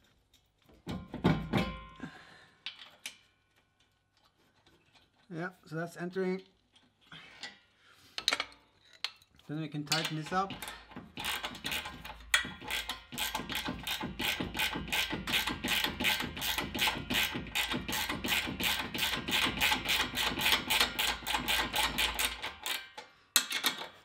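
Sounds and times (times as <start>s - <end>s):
ratcheting spanner clicking: 9.9s - 24.0s.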